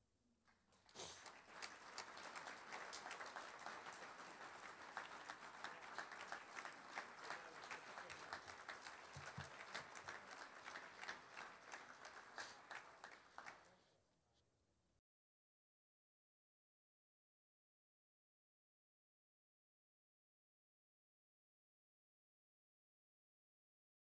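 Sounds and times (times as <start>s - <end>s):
audience clapping: 0.5s - 13.8s.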